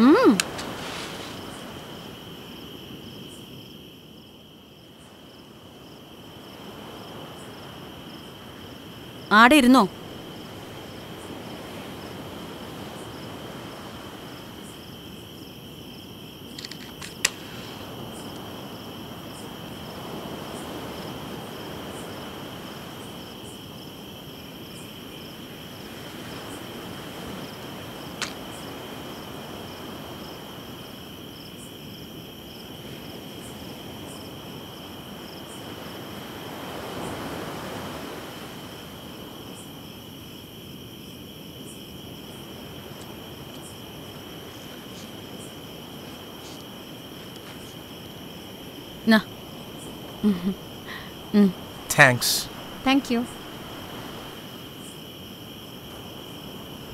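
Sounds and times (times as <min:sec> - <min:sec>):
soft surf: 0:00.0 - 0:02.6, 0:42.3 - 0:54.7
crickets chirping: 0:00.0 - 0:56.9
sharp click: 0:16.6 - 0:17.4.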